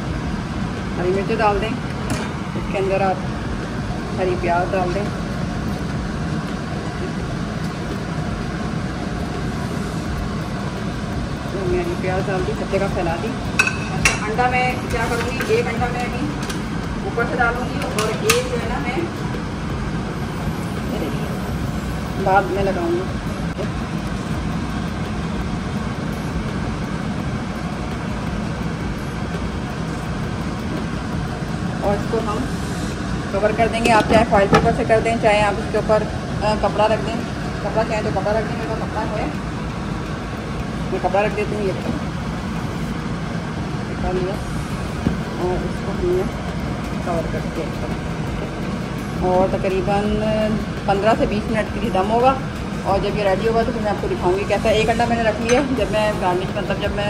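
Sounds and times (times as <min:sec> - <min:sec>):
kitchen hum: 0:00.0 - 0:57.0
low rushing noise: 0:00.0 - 0:57.0.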